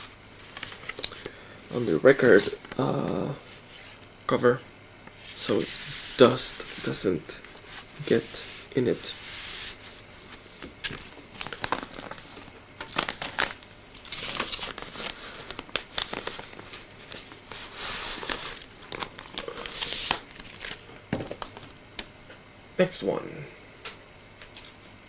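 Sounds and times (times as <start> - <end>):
plastic sleeve crinkling: 10.8 - 21.7.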